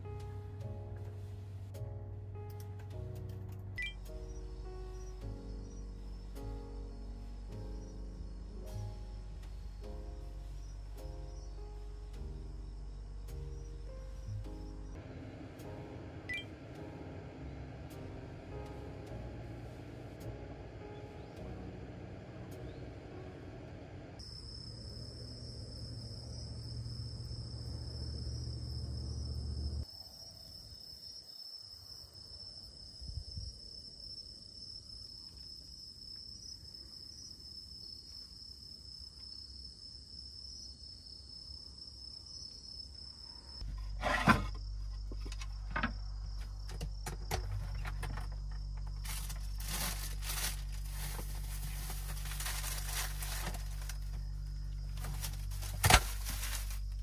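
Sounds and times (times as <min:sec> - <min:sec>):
insects chirring: 0:24.2 - 0:57.0.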